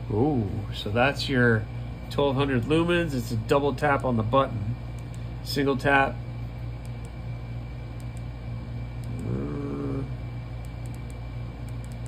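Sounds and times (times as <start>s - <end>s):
low room hum: 0.0s - 12.0s
man humming: 9.0s - 10.2s.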